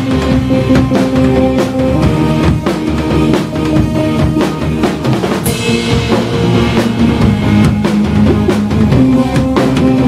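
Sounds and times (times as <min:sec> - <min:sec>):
live rock band: 0:00.0 - 0:10.0
cymbal crash: 0:05.4 - 0:08.2.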